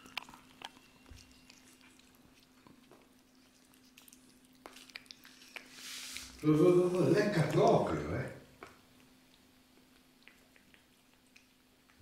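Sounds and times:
cats chewing food: 0.0s - 12.0s.

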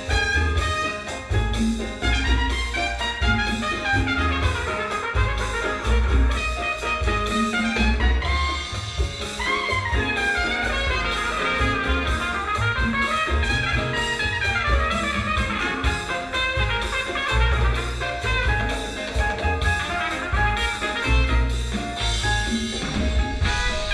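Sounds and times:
jazz through horn loudspeakers: 0.0s - 23.9s.

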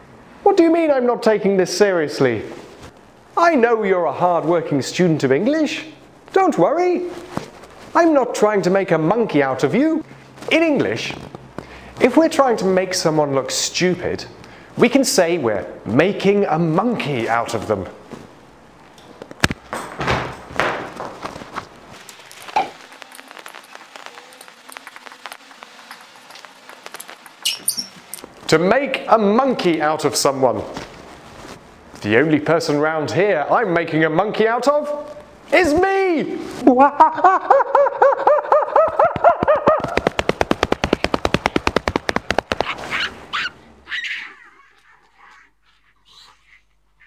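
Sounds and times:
man imitating monkey calls: 37.6s - 40.0s, 42.6s - 47.0s.

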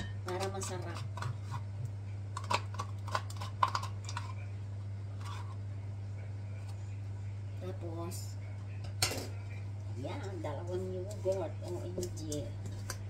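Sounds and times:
steady low hum: 0.0s - 13.0s
spoon scraping a plastic cup: 0.4s - 1.7s, 5.2s - 5.6s.

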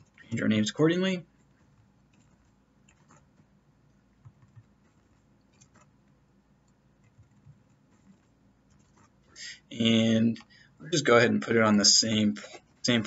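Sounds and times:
keyboard and mouse clicks: 1.5s - 3.5s, 4.2s - 9.2s.

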